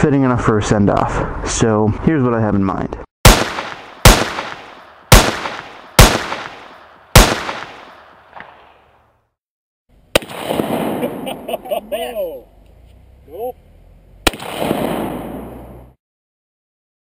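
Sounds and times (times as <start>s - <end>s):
gunshots with echo: 3.2s - 8.7s, 10.2s - 11.7s, 14.3s - 15.8s
sharp crack: 3.2s - 8.8s, 10.1s - 11.7s, 14.2s - 15.8s.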